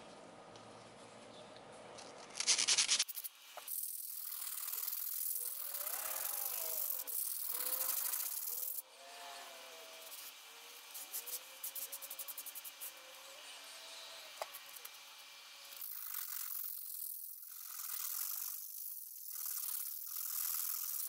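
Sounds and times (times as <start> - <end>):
sandpaper scratching on steel: 2.4 - 8.8, 9.4 - 13.3.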